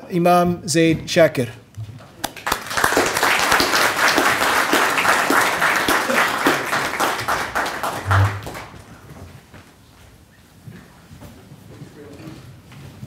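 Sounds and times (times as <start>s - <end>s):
audience applauding: 2.2s - 9.0s.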